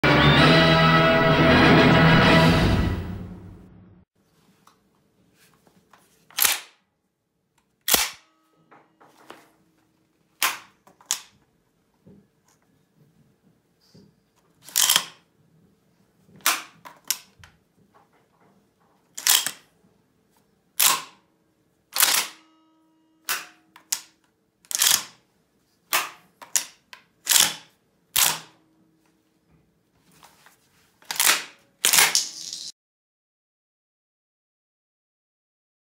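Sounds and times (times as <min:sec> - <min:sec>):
loud shotgun clacks: 0:06.4 - 0:06.7, 0:07.9 - 0:08.3, 0:22.0 - 0:22.4.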